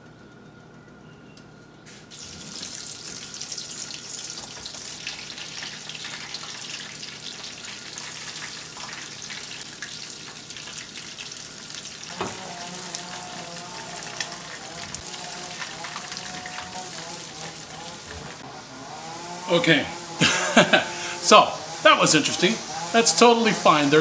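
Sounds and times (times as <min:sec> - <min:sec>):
oil sizzling deep-frying: 0:01.9 - 0:19.1
lawn equipment droning: 0:02.1 - 0:24.0.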